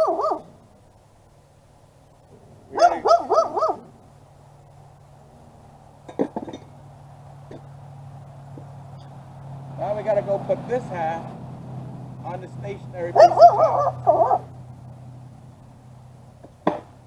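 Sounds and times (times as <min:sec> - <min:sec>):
dog yelping: 0:00.0 - 0:00.6, 0:02.7 - 0:04.0, 0:13.2 - 0:14.6
low steady hum: 0:00.0 - 0:17.0
sharp knocks: 0:16.4 - 0:17.0.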